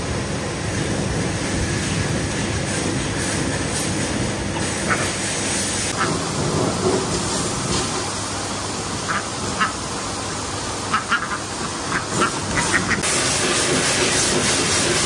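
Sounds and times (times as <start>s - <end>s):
steady rushing background noise: 0.0s - 15.0s
poultry calls: 10.9s - 13.0s.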